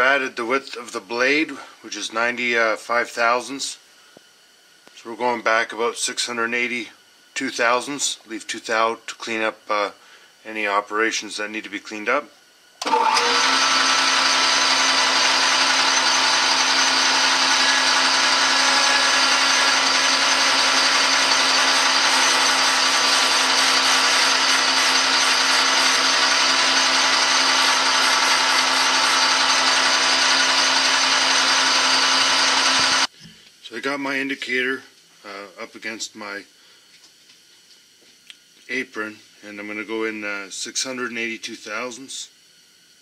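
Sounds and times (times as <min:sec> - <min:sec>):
metal lathe whining: 0:12.8 - 0:33.1.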